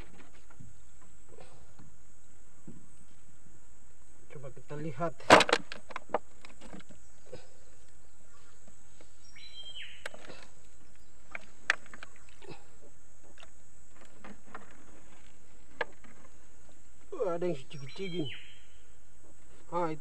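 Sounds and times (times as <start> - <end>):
outdoor background hiss: 0.0 - 20.0
bird whistle call: 17.8 - 18.8.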